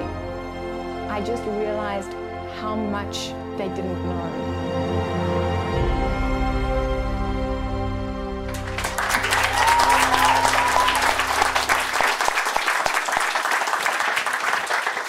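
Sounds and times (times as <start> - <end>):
low music: 0.0 - 13.2
group clapping: 8.5 - 15.0.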